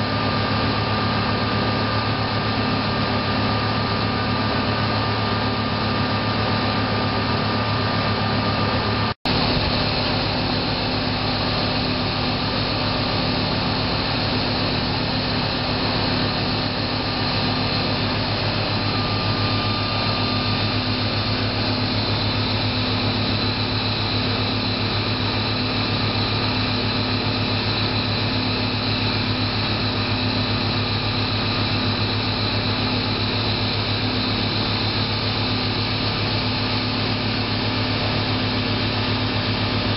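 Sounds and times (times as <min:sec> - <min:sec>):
machine saw droning: 0:00.0 - 0:39.9.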